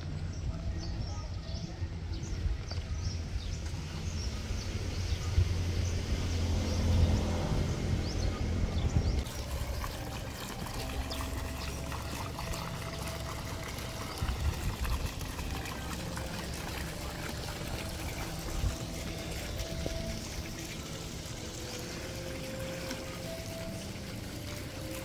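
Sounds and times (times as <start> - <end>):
low rumble: 1.8 - 9.8
fountain water splashing into pond: 9.2 - 25.0.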